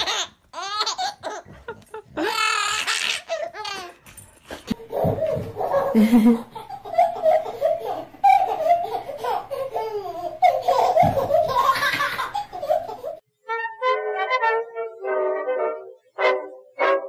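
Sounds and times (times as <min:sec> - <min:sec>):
child giggling: 0:04.8 - 0:13.2.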